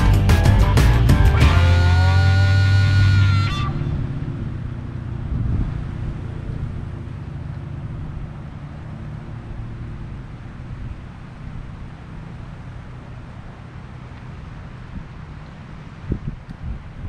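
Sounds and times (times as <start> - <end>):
background music: 0.0 - 3.8
passing car road rumble: 0.0 - 17.0.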